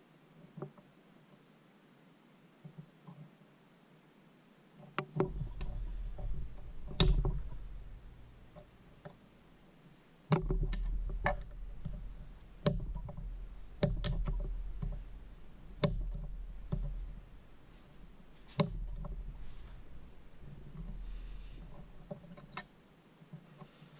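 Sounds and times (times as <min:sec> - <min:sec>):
low rumble of hands working: 0:04.8 - 0:23.9
metal pick clicking and knocking: 0:04.9 - 0:09.2, 0:10.3 - 0:22.7.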